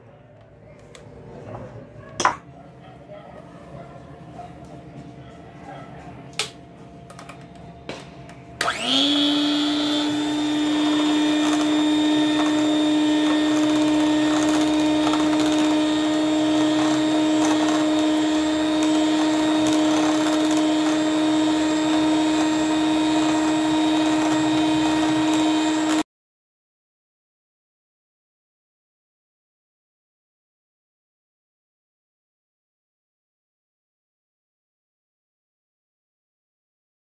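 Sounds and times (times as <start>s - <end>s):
electric hand mixer whirring: 8.6s - 26.1s.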